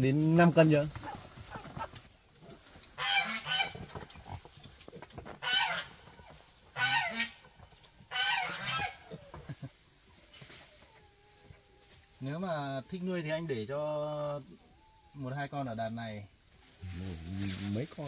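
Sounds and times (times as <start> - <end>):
piglet squealing: 5.4 - 7.4, 8.1 - 9.3.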